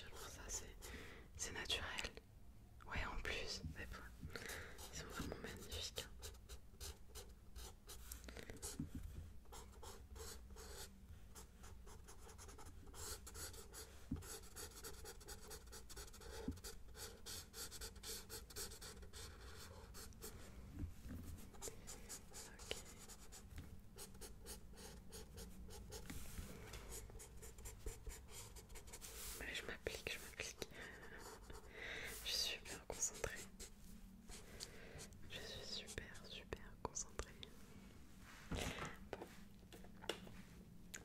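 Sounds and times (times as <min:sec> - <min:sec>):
pencil scratching on paper: 0:04.8 - 0:20.4, 0:21.3 - 0:26.2, 0:26.9 - 0:29.5.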